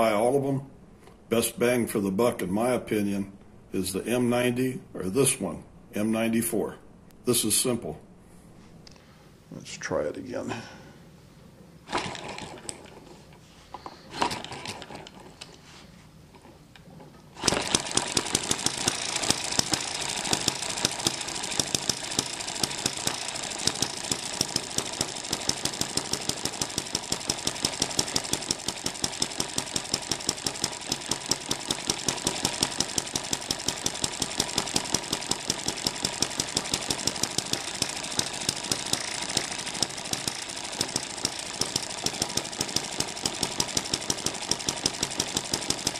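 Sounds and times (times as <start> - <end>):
engine flywheel knocks: 17.4 - 45.9
engine running with clatter: 17.4 - 45.9.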